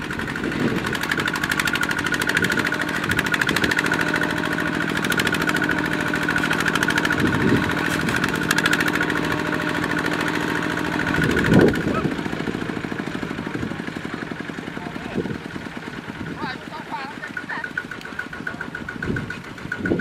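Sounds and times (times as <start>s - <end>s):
diesel tractor engine chugging: 0.0s - 20.0s.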